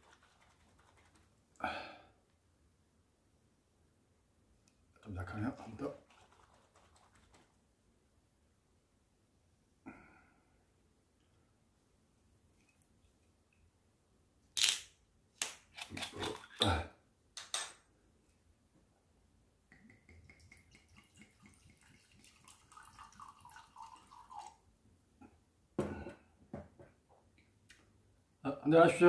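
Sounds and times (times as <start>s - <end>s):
liquid pouring into glass: 20.3s - 24.6s.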